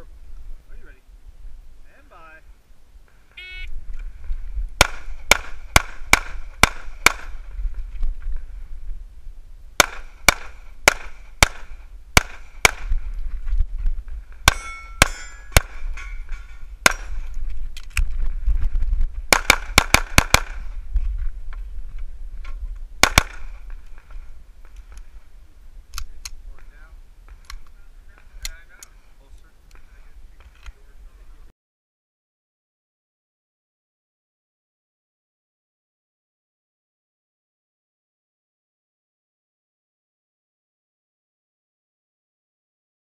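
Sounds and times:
pistol shots: 4.8s - 7.4s, 9.8s - 12.9s, 14.4s - 15.9s, 16.8s - 17.2s, 19.3s - 20.7s, 23.0s - 23.6s.

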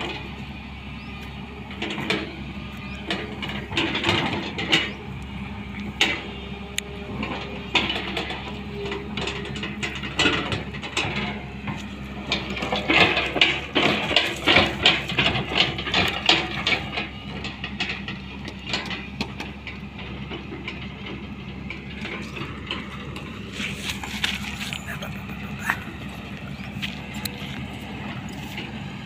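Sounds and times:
excavator diesel engine running: 0.0s - 29.0s
bucket rattling and scraping: 7.9s - 17.1s, 21.8s - 29.0s.

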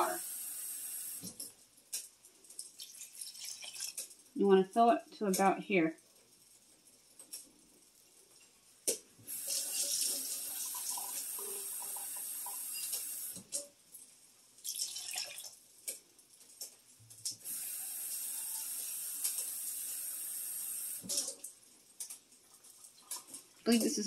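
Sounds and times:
faucet water filling a can: 0.0s - 1.5s, 2.6s - 4.2s, 9.2s - 13.5s, 14.6s - 15.6s, 17.3s - 21.5s.

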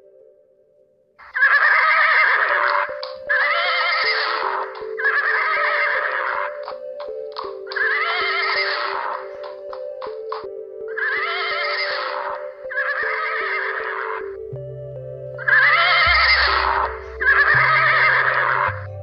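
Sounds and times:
background music: 0.0s - 19.0s
horse whinnying: 1.2s - 6.7s, 7.7s - 9.3s, 11.0s - 14.2s, 15.5s - 18.8s.

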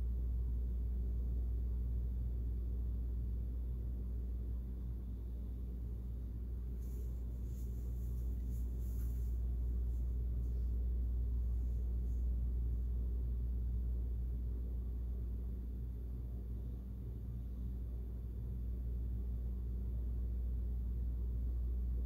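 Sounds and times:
low room hum: 0.0s - 22.0s
soft rustles: 6.0s - 13.0s.

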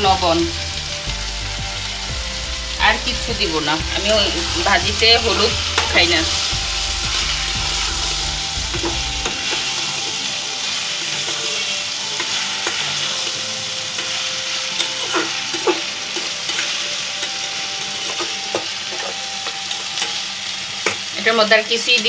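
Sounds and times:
vegetables sizzling in oil: 0.0s - 22.0s
metal spatula scraping pan: 3.2s - 20.2s.

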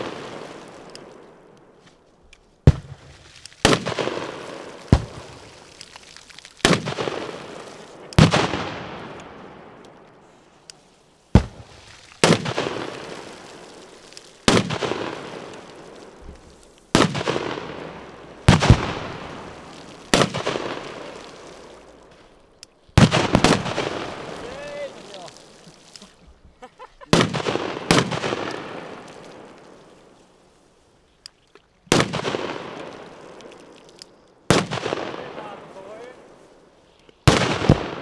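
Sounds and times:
firecrackers banging in water: 2.7s - 9.2s, 11.3s - 22.4s, 23.0s - 26.2s, 27.0s - 30.2s.

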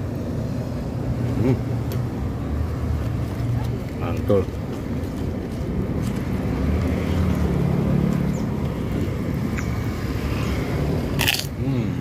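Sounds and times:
road traffic passing: 0.0s - 12.0s.

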